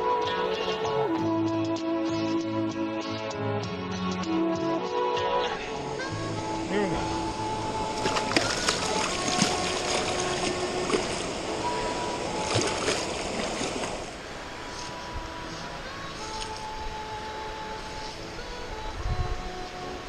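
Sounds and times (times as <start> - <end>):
water running over rocks: 6.0 - 20.0.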